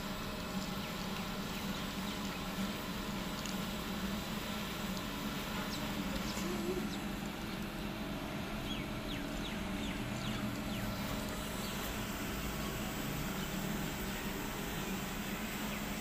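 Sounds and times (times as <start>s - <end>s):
steady low hum: 0.0s - 16.0s
birds chirping: 5.5s - 16.0s.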